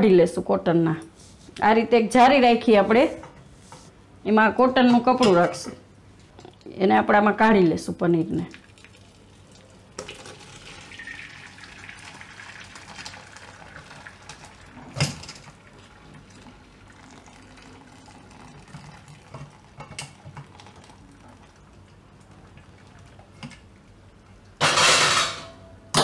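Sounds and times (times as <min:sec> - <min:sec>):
liquid trickling through cloth: 0:08.5 - 0:14.8, 0:15.4 - 0:23.3.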